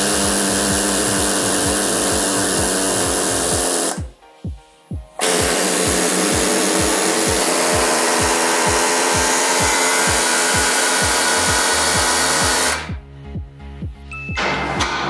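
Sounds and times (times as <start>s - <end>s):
pneumatic air hammer rattling: 0.0s - 4.1s, 5.2s - 12.9s.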